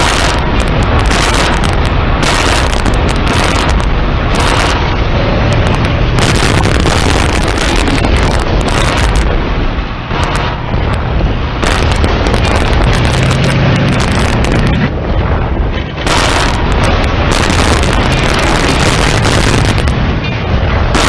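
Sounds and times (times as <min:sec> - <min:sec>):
tank cannon fire: 0:00.0 - 0:09.3, 0:11.6 - 0:13.4, 0:16.0 - 0:20.0, 0:20.7 - 0:21.0
explosions: 0:00.0 - 0:21.0
heavy rumble: 0:00.0 - 0:21.0.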